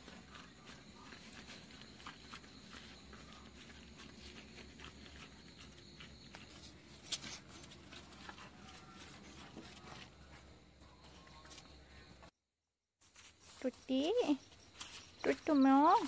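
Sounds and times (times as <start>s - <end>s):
dogs chewing and crunching food: 0.0s - 11.6s.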